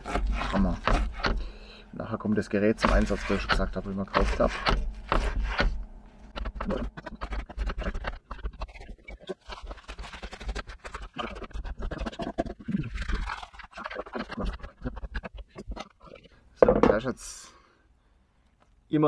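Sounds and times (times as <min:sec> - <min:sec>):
knife chopping on plastic board: 0:00.0 - 0:01.6, 0:02.7 - 0:08.8.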